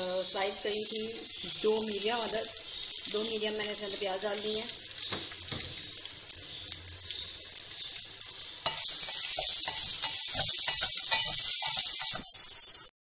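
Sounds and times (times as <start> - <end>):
onions sizzling in hot oil: 0.0 - 12.9
wooden spoon scraping a pot: 8.6 - 12.4.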